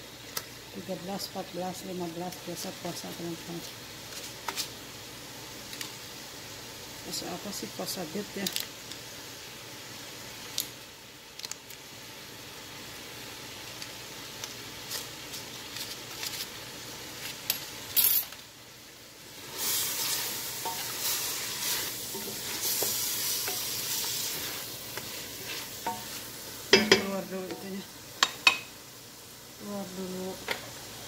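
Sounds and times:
meat sizzling in a pot: 0.0s - 31.0s
wooden spatula scraping a pot: 19.4s - 27.8s.

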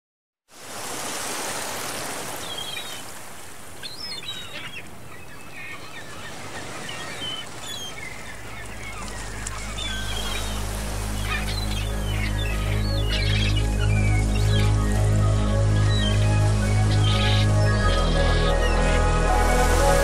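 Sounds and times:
birds chirping: 2.2s - 20.0s
low sustained music notes: 8.1s - 20.0s.

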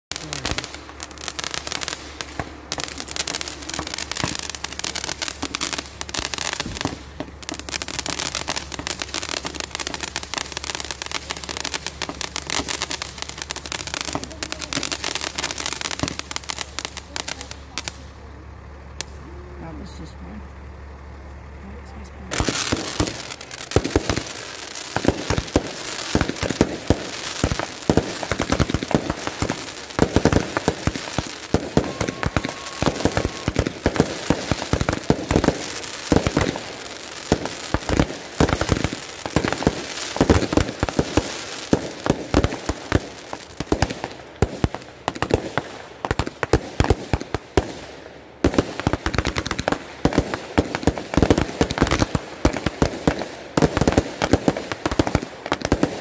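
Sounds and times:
fireworks bangs and crackles: 0.0s - 20.1s, 21.9s - 56.0s.

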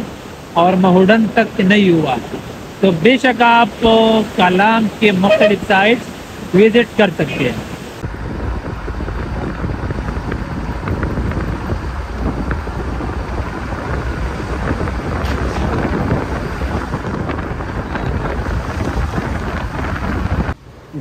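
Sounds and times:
vehicle road noise: 0.0s - 21.0s
wind rumble on microphone: 0.0s - 21.0s.

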